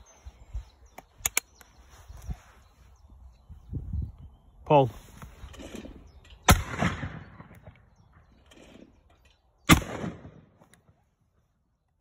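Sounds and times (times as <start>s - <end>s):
shotgun shots with echo: 6.5s - 7.8s, 9.7s - 10.6s.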